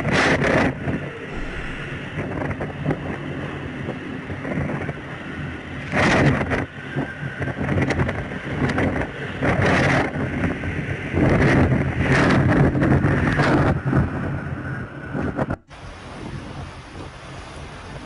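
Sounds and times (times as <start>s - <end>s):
wind gusting and buffeting microphone: 0.0s - 18.0s
heavy rain: 1.3s - 2.6s.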